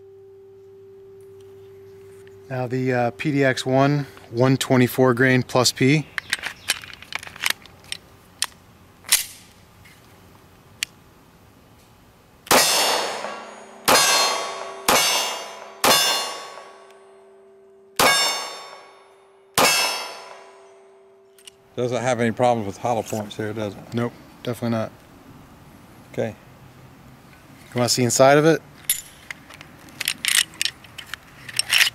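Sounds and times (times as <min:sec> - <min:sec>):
pistol magazine clicks: 0:06.1 - 0:09.5
pistol shots: 0:12.5 - 0:16.8, 0:18.0 - 0:18.9, 0:19.6 - 0:20.4
steel target clanging: 0:12.5 - 0:17.4, 0:18.0 - 0:21.0.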